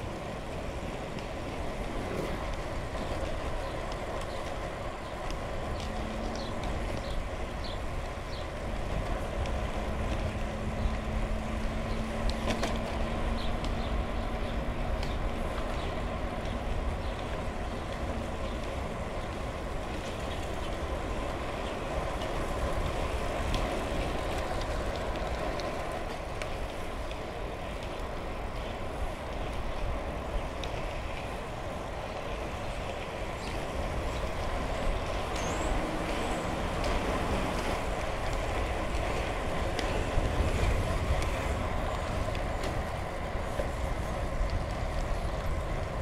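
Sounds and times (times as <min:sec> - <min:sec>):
bicycle rolling on asphalt: 0:00.0 - 0:46.0
faint light ticks: 0:09.0 - 0:11.1, 0:11.9 - 0:13.9, 0:15.0 - 0:20.8, 0:34.8 - 0:43.0.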